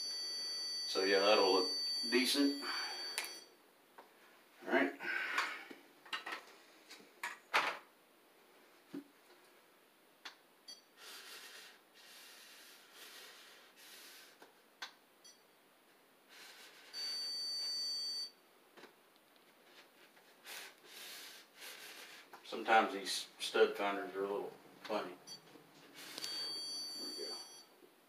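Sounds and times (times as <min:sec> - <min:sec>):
electronic beep: 0:26.2 - 0:27.7.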